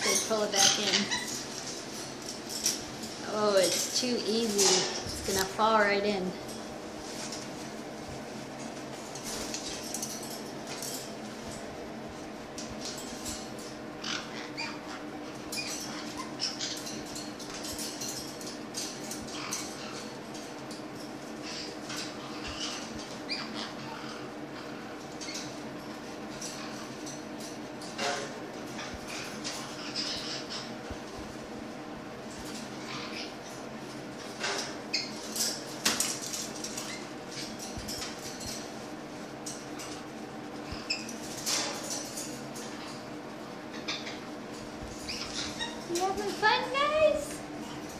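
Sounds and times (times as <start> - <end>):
parrots squeaking and chirping: 0.0 - 1.9, 4.4 - 5.7, 14.0 - 20.1, 21.4 - 25.6, 28.8 - 30.9, 32.5 - 33.4, 34.4 - 38.8, 40.7 - 43.0, 43.7 - 44.3, 44.9 - 47.4
metal cage clattering: 0.0 - 5.7, 9.1 - 11.7, 15.4 - 23.2, 34.2 - 38.8, 40.9 - 43.1
steady low hum: 0.0 - 47.9.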